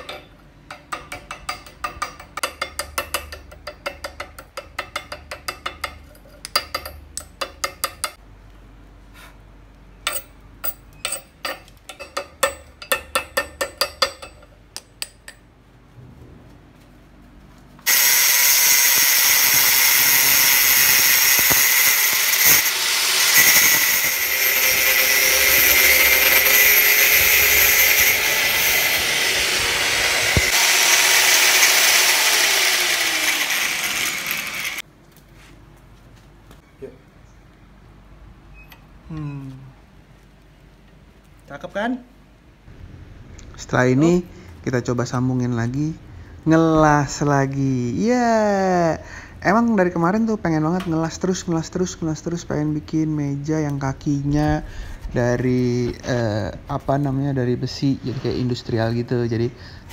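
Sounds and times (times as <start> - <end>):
hammer tapping metal: 0.0 - 8.2, 10.0 - 15.5
angle grinder on metal: 17.9 - 34.8.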